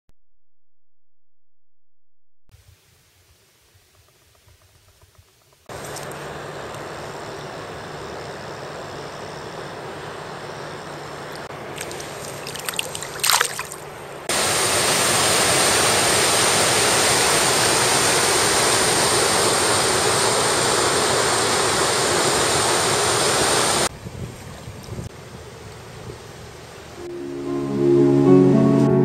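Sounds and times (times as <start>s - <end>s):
river water rushing: 11.5s - 23.9s.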